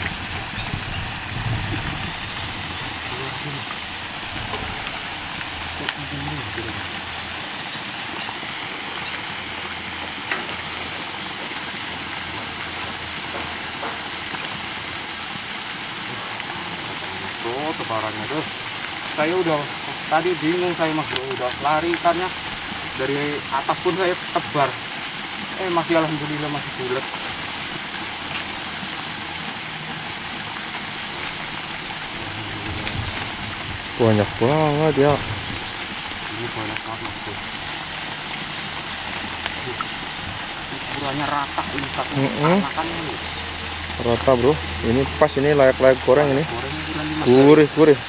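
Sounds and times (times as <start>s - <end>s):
waterfall rushing: 0.0s - 48.0s.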